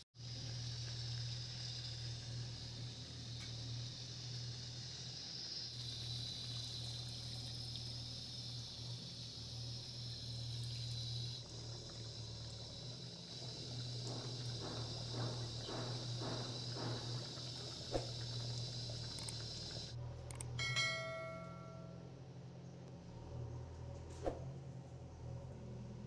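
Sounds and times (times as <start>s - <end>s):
water pouring into a wok: 0.2s - 14.6s
short ringing bell chime: 20.6s - 22.1s.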